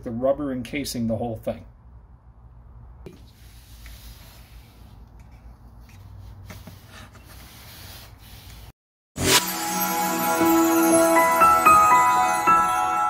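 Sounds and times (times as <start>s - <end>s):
paper towel rubbing on rubber: 3.2s - 8.8s.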